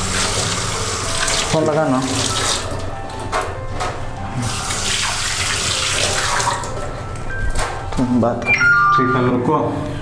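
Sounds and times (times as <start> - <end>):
hands washed under water: 0.0 - 2.8, 4.4 - 6.7.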